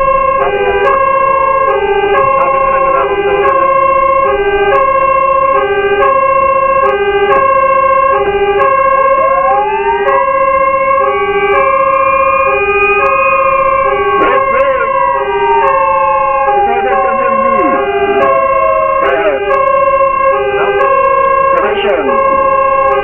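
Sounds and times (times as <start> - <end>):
hi-lo siren: 0.0 - 23.0
siren wail: 0.0 - 23.0
quick siren warble: 11.0 - 21.5.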